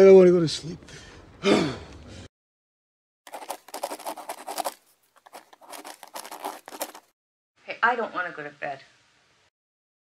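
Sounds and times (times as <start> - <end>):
rapid scratchy clicks and rustles: 3.3 - 7.1.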